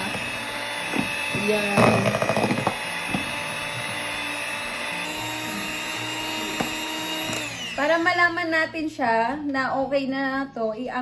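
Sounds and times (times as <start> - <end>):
electric hand mixer whine: 0.0 - 8.7.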